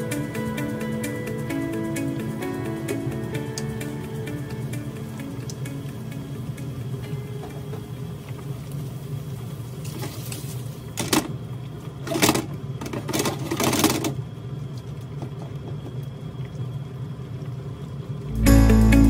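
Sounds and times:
tomatoes sizzling in a frying pan: 6.0s - 11.0s
steady low hum: 15.9s - 19.0s.

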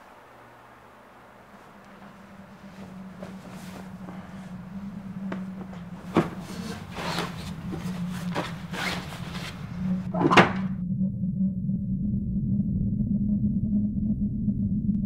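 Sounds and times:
low steady hum: 0.0s - 15.0s
scraping and rustling in a drawer: 5.7s - 10.3s.

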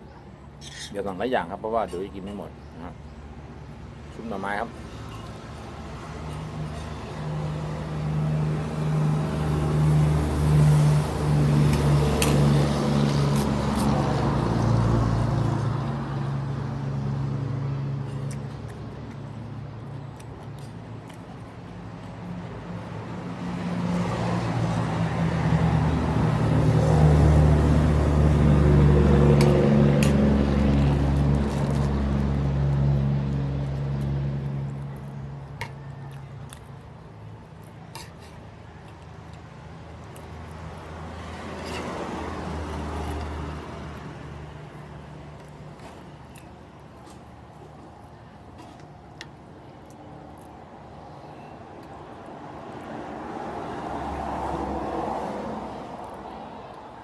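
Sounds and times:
vehicle engines passing: 0.0s - 57.0s.

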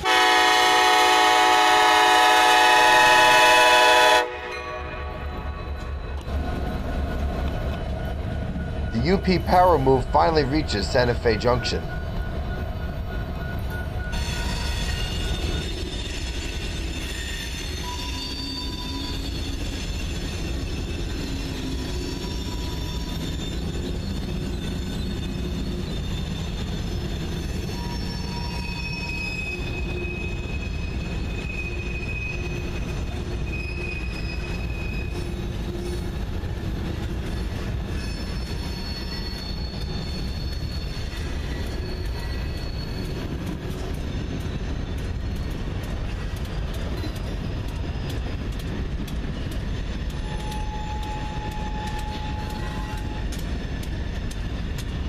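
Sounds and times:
wheel flange squeal: 11.8s - 45.6s, 49.3s - 54.6s.

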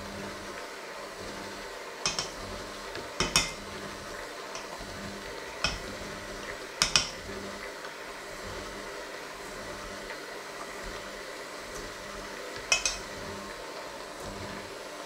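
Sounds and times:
metal beaters knocking on bowl: 2.0s - 3.7s, 4.5s - 4.8s, 5.6s - 7.3s, 12.6s - 13.2s.

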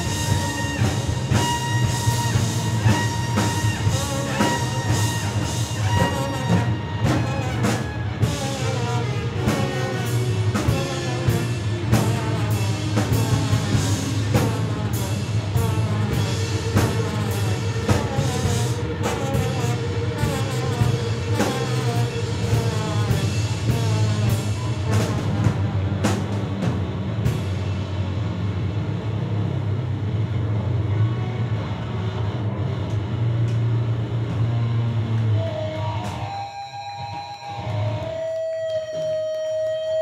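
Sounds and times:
trumpet: 0.0s - 27.4s
drum kit beat: 0.0s - 28.3s
live rock band: 0.0s - 40.0s.

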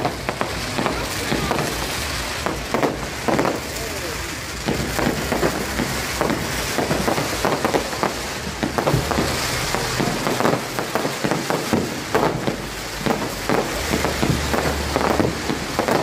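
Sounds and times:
fireworks popping and crackling: 0.0s - 16.0s
steady hiss: 0.0s - 16.0s.

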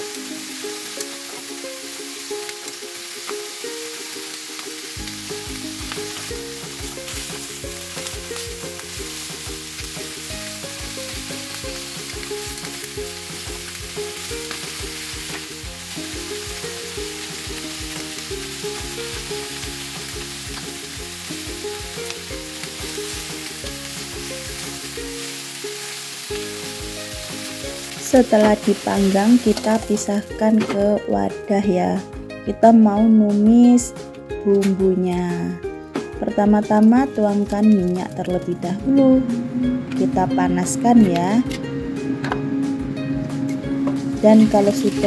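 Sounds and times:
fish sizzling in a wok: 0.0s - 32.3s, 41.7s - 45.0s
background music with bass: 5.0s - 25.2s, 26.3s - 45.0s.

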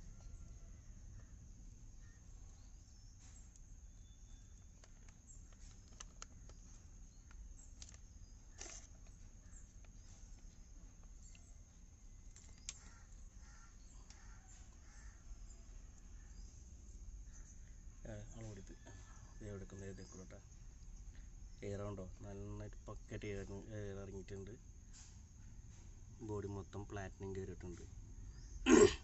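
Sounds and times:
faint bird calls: 0.0s - 10.6s, 12.4s - 20.5s.

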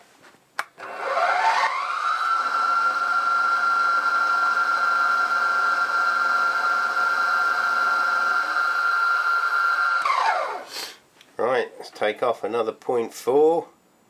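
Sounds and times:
milling machine spindle whine: 0.8s - 10.7s
end mill cutting steel: 0.8s - 10.8s.

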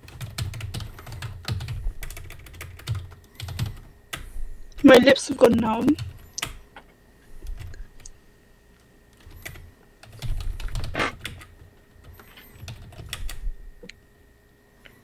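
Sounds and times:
typing on computer keyboard: 0.0s - 4.2s, 5.4s - 6.6s, 9.2s - 13.4s.

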